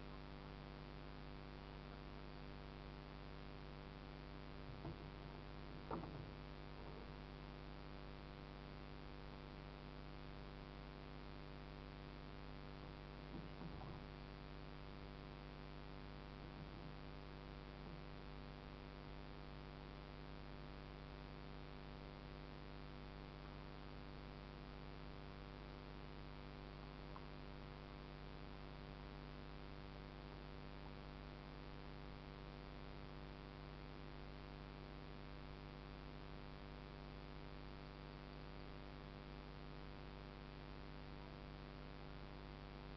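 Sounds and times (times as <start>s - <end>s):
faint electrical hum with hiss: 0.0s - 42.9s.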